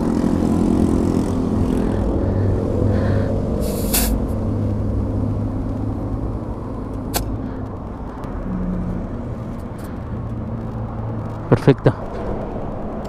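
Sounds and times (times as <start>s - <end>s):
short hiss: 3.6s - 4.2s
sharp click: 7.1s - 7.4s.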